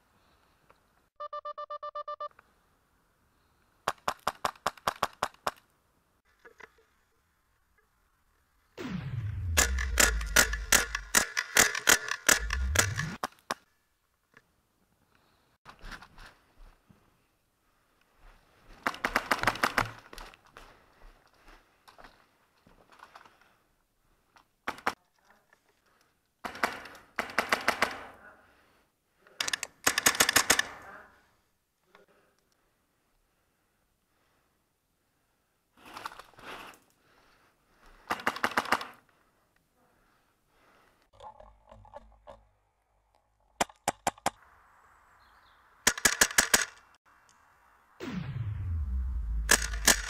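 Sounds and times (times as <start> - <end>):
airsoft gun rapid shots: 8.9 - 13.2, 38.1 - 39.0, 45.9 - 46.7, 49.3 - 50.0.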